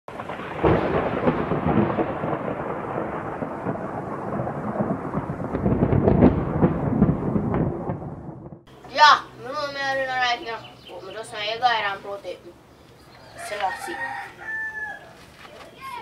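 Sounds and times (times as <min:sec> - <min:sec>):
rolling thunder: 0:00.1 - 0:08.7
thunder crack: 0:00.1 - 0:08.7.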